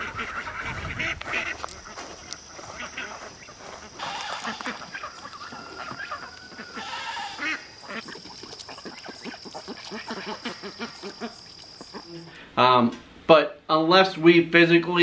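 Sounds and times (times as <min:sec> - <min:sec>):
geese honking: 0:00.0 - 0:12.4.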